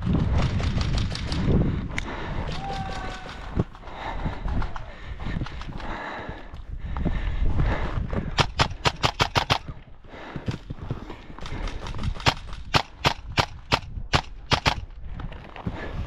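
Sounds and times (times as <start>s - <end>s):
footsteps on dry ground: 5.2s - 8.4s
airsoft rifle shots: 8.4s - 9.7s, 11.6s - 14.9s.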